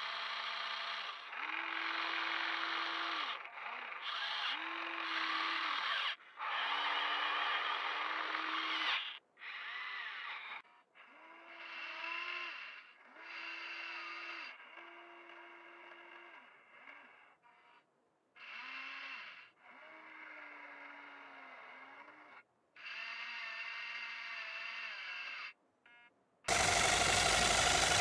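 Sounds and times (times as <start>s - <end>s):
electric motors whining: 26.5s - 28.0s.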